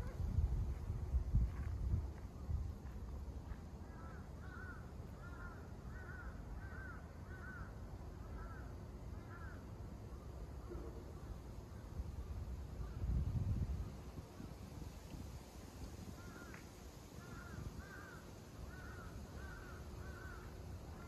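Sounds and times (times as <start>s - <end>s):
crow cawing: 3.9s - 9.6s, 16.2s - 16.6s, 17.2s - 21.0s.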